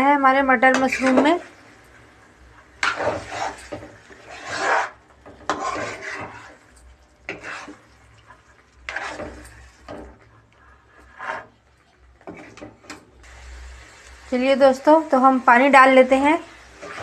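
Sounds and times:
metal spatula scraping a pan: 0.6s - 1.9s, 2.6s - 13.0s, 15.8s - 17.0s.

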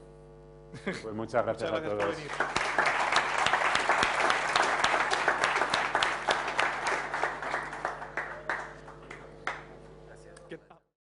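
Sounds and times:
audience applauding: 1.8s - 9.8s.

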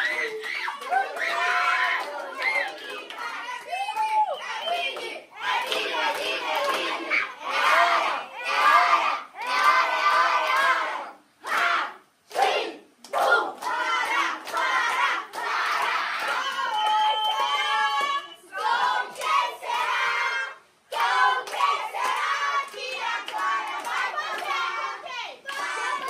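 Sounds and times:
hand clapping: 4.7s - 6.9s, 12.3s - 18.3s, 20.9s - 24.6s, 25.5s - 26.0s.

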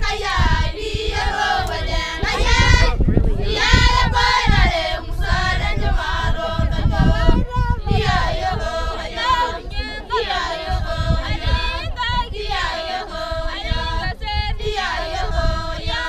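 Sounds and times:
women singing in harmony: 0.0s - 16.0s.

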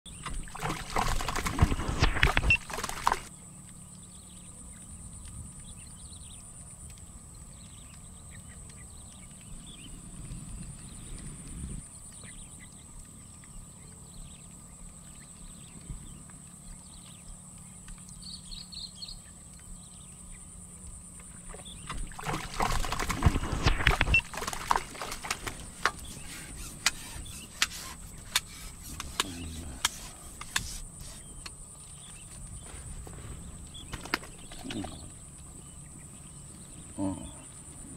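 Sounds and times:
fish thrashing and splashing: 0.1s - 3.3s, 21.4s - 31.0s
steady high-pitched whine: 0.1s - 37.9s.

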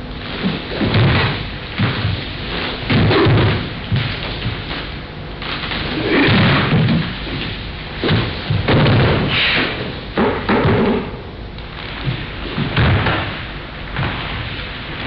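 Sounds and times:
bodies thudding on wooden floor: 2.8s - 4.9s
person thrown to floor: 5.6s - 11.1s.

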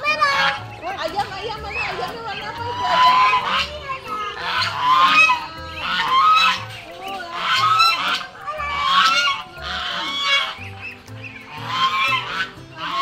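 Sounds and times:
geese and ducks honking: 0.0s - 13.0s.

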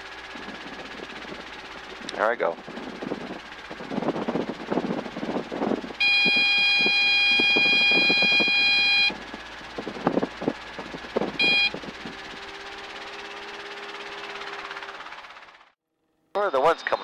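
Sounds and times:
helicopter cabin noise: 0.0s - 15.7s
high-pitched warning horn: 5.8s - 9.5s, 11.2s - 15.0s.

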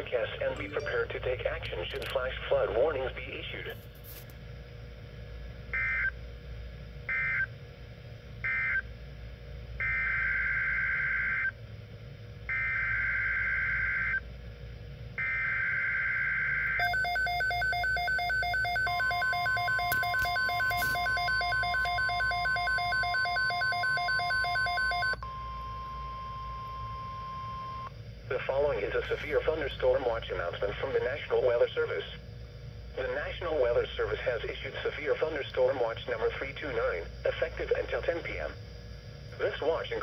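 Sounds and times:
steady alert tone: 0.6s - 1.2s.

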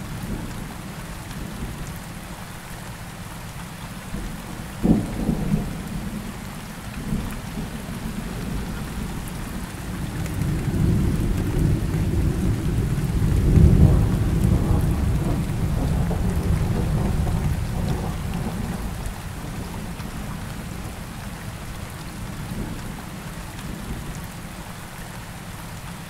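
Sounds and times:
steady rain downpour: 0.0s - 26.0s
rolling thunder: 7.0s - 21.0s.

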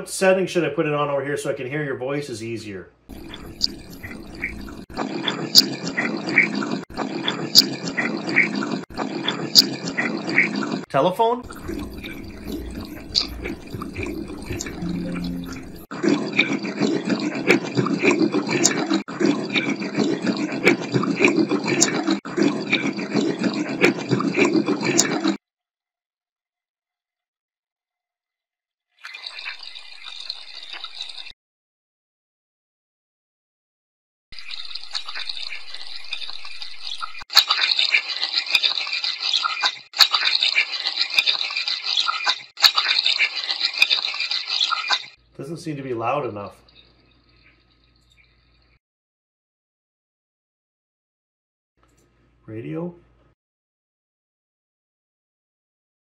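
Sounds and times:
choppy water hiss: 3.1s - 10.8s, 11.4s - 15.9s
garbled tap water noise: 3.1s - 25.4s, 29.0s - 31.3s, 34.4s - 45.2s.

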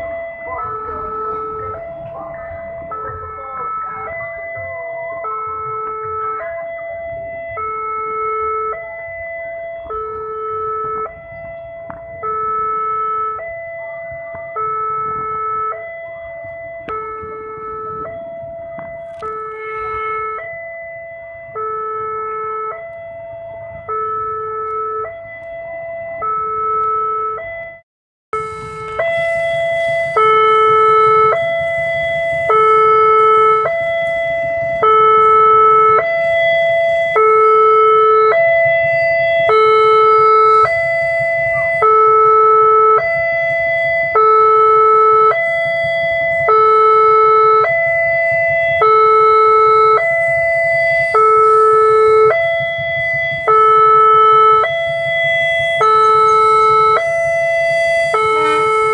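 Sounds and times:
level crossing two-tone alarm: 0.0s - 58.9s.

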